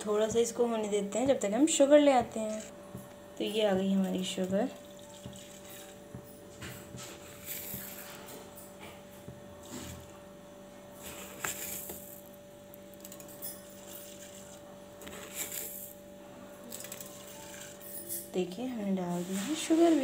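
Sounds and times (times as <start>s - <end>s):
faint steady hum: 0.0s - 19.9s.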